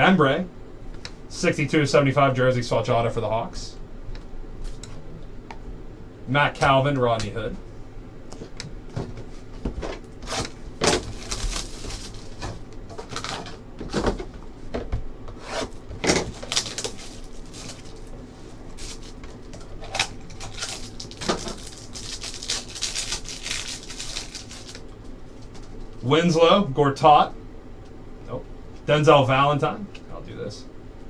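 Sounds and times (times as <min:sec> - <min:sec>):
wrapper crinkling: 0:11.0 - 0:12.5, 0:16.2 - 0:24.9
cards shuffling: 0:18.8 - 0:24.8.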